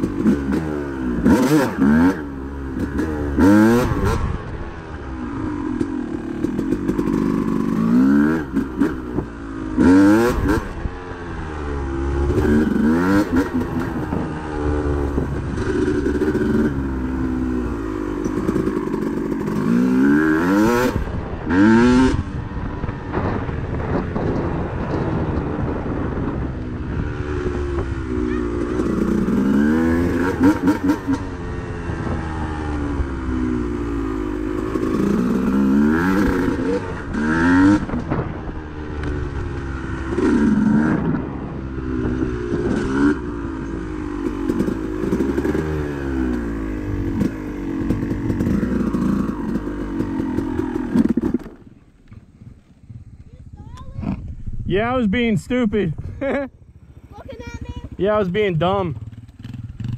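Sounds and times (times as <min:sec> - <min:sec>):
dirt bike engine accelerating: 0:00.0 - 0:59.9
clatter over rough ground: 0:43.6 - 0:54.5.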